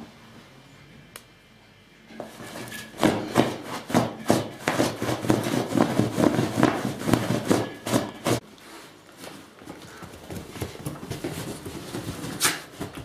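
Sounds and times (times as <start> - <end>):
dog scratching fabric cushion: 2.4 - 8.4.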